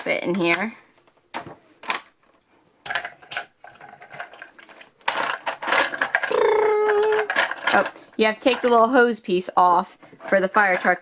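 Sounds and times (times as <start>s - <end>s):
plastic toy parts clicking: 2.8s - 8.8s
person saying ohh: 6.3s - 7.3s.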